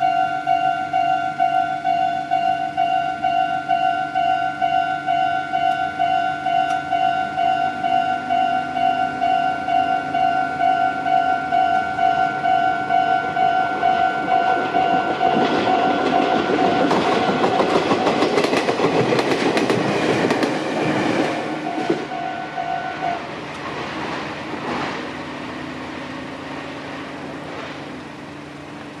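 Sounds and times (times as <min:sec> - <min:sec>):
level crossing bell ringing: 0:00.0 - 0:18.5, 0:21.4 - 0:23.2
train wheels clacking on rails: 0:00.0 - 0:25.2
train rumble: 0:00.0 - 0:29.0.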